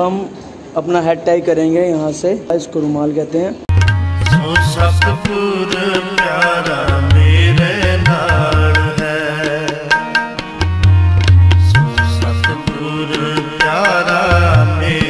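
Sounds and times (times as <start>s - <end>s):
wavering melodic line: 3.7s - 5.5s
tabla playing: 3.7s - 15.0s.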